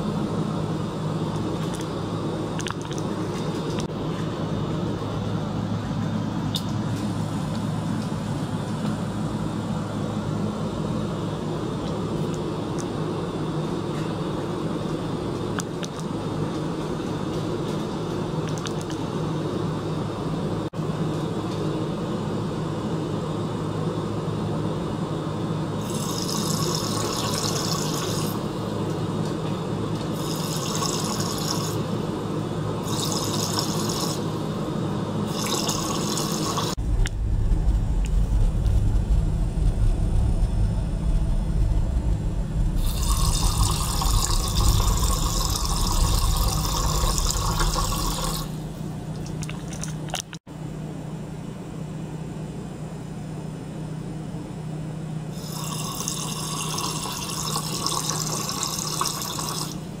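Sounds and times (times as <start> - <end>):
pump humming: 35.2 - 50.2
deeper rumble: 36.7 - 49.1.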